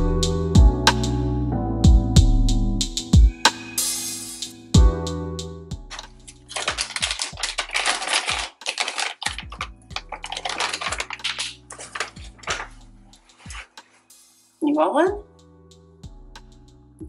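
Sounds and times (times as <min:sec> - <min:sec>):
plastic bag crinkling: 0:05.9 - 0:13.7.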